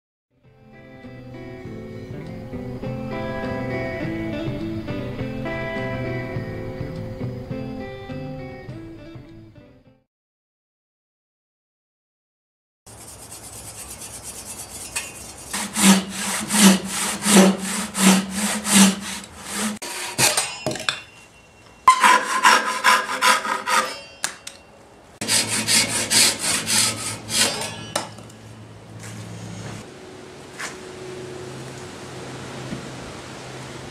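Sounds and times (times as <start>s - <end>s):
handsaw cutting log: 12.9s - 20.4s, 21.9s - 24.1s, 25.2s - 27.9s.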